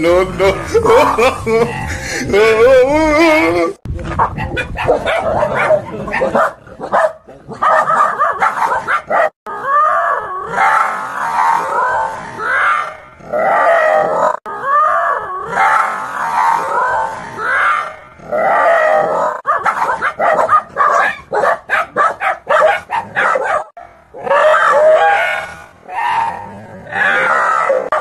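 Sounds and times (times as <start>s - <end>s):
dog barking rapidly: 4.2s - 9.3s, 19.4s - 25.2s
dog howling: 24.2s - 25.5s.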